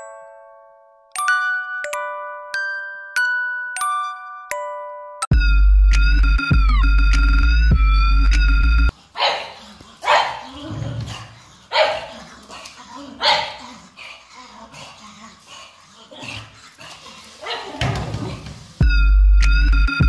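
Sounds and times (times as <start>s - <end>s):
chiming music: 0.0s - 8.9s
dog barking loudly: 9.2s - 13.8s, 17.3s - 18.0s.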